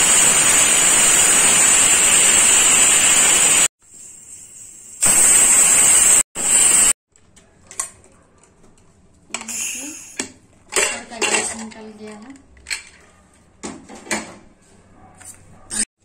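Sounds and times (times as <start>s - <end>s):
pressure cooker whistling: 0.0s - 7.0s.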